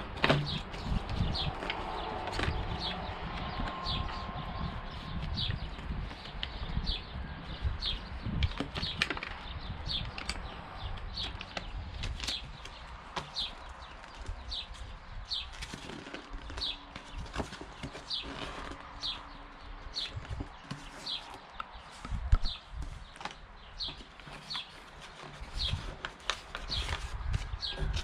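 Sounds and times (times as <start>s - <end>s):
cardboard box moved and opened: 0.0s - 3.0s
paper pages rustling: 0.0s - 3.8s, 20.1s - 28.0s
bird chirping: 0.3s - 26.0s.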